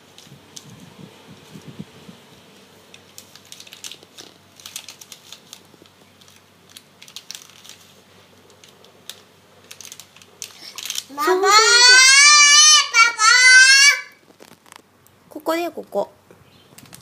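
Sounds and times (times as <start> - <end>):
plastic snack packet crinkling: 2.8 - 12.0, 14.1 - 14.8.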